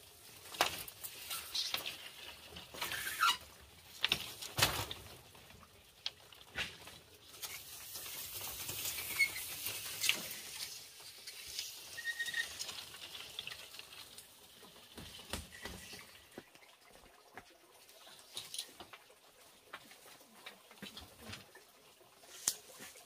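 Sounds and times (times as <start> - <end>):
bamboo poles scraping on concrete: 0.6 - 3.5, 6.6 - 13.9.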